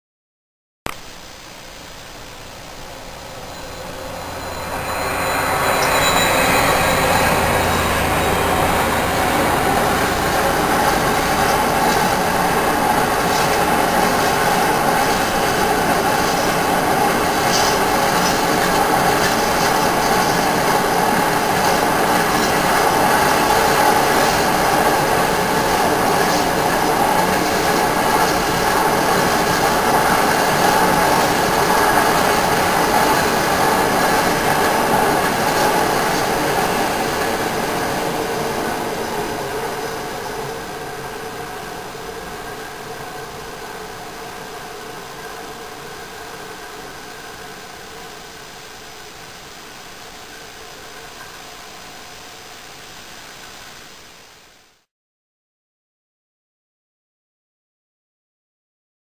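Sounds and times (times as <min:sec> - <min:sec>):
diesel locomotive engine hum: 0:02.0 - 0:48.6
train wheels rumbling on rails: 0:02.2 - 0:48.6
wheel squeal: 0:03.1 - 0:12.0.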